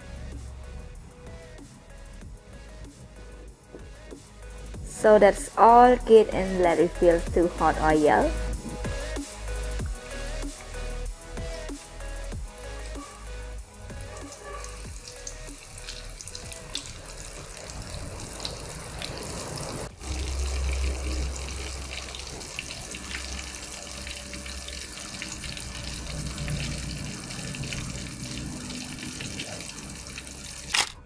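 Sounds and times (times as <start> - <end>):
meat deep-frying in oil: 13.6 - 30.7.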